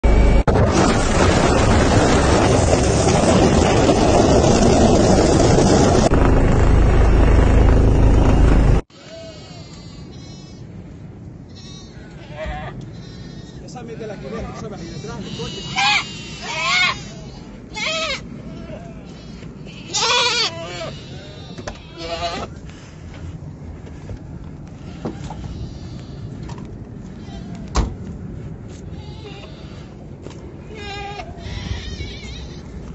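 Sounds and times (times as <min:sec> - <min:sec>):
steady low rumble: 0:00.0 - 0:08.9, 0:09.7 - 0:32.9
rushing wind: 0:00.0 - 0:32.9
helicopter engine and rotor drone: 0:03.8 - 0:08.8
goats bleating: 0:11.5 - 0:22.6, 0:30.6 - 0:32.7.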